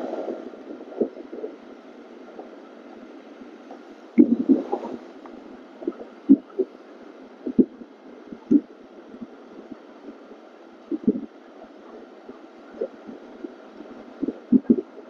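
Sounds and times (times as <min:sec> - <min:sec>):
wind thumps on microphone: 0:04.2 - 0:05.0, 0:10.9 - 0:11.3, 0:14.2 - 0:14.9.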